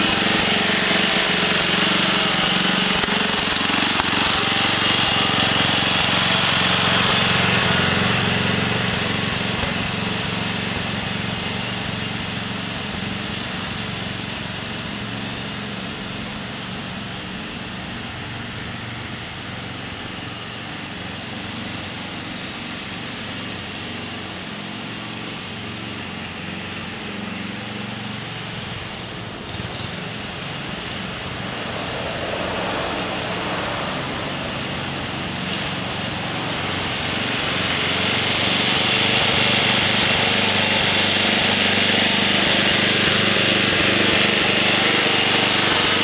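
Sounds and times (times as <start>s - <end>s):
garden tractor engine running: 0.0s - 46.0s
car passing: 30.0s - 37.2s.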